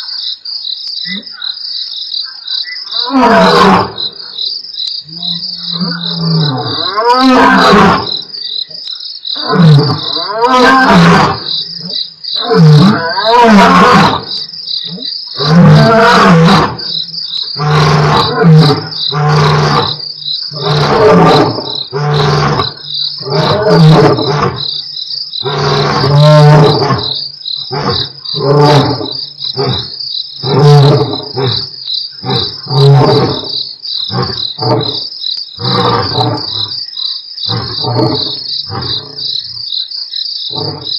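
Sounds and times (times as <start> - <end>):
crickets chirping: 0.0 - 40.9
lions roaring: 9.4 - 17.0, 17.6 - 24.7, 25.4 - 35.0, 35.6 - 36.8.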